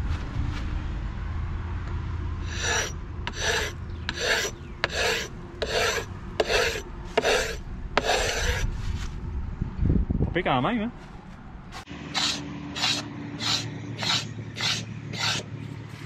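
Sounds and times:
paint scraper rasping on hull: 2.5 - 8.7, 12.1 - 15.5.

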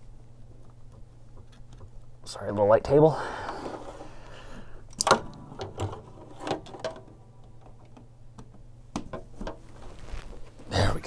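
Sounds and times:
plugs clicking into a socket: 4.9 - 6.0.

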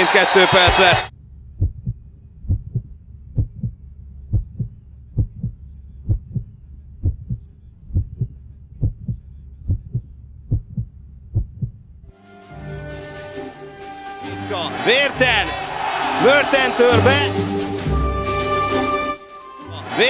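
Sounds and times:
heartbeat thumps: 1.6 - 12.0.

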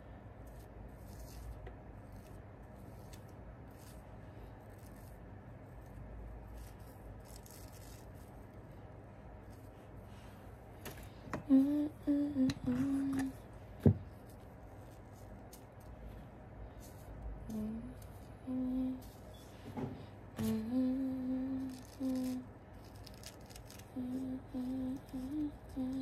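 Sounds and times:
faint hair rustling: 0.4 - 26.0
woman humming: 11.4 - 13.4, 17.5 - 19.2, 20.4 - 22.5, 23.9 - 26.0.

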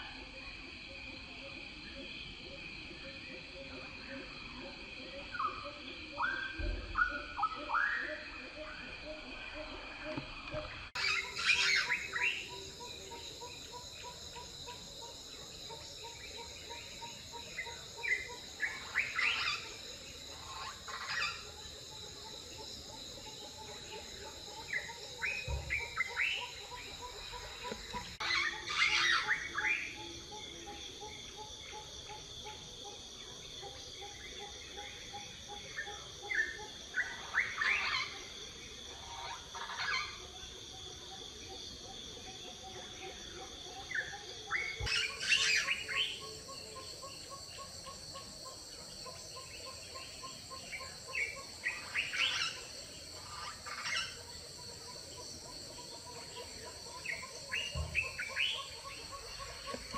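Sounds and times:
insects droning: 0.0 - 59.9
small birds chirping: 10.2 - 32.6, 43.8 - 59.9.

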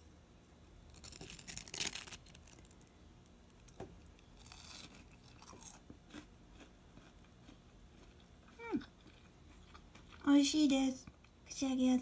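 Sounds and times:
crunchy chewing: 0.8 - 10.3.

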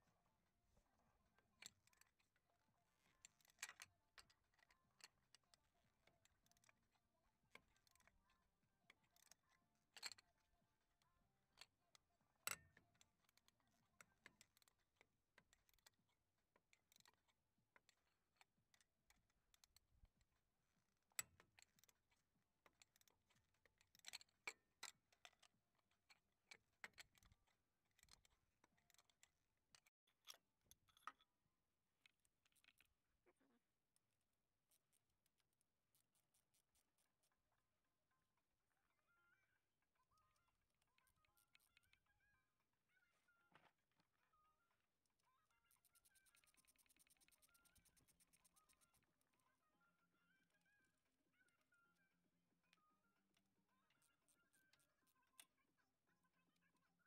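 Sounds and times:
small clicks and taps: 11.6 - 20.2, 21.0 - 31.3.

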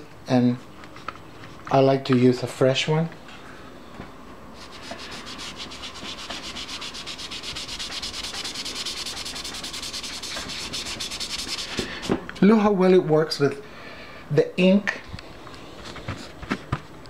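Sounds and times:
cotton ball scratching on paper: 4.6 - 12.0.

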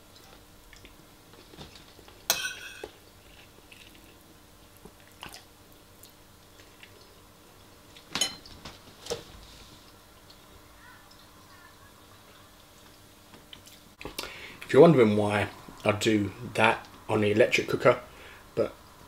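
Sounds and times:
metal spoon clinking ceramic bowl: 2.3 - 2.9
soft chewing: 3.1 - 7.2.

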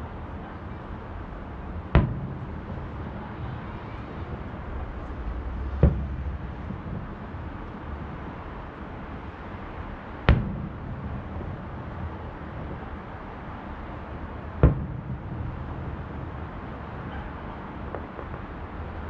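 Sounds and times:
distant firework booms: 1.6 - 8.9, 9.6 - 13.0, 14.4 - 18.5.

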